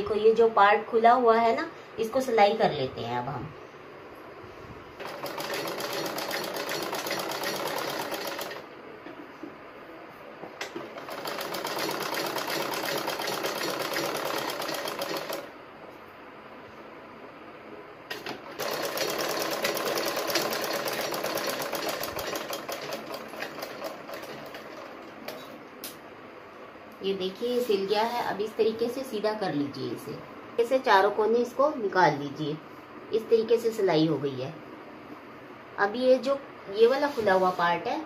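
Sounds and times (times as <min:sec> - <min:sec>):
sewing machine stitching: 0:05.0 - 0:08.6, 0:10.8 - 0:15.5, 0:18.1 - 0:25.4.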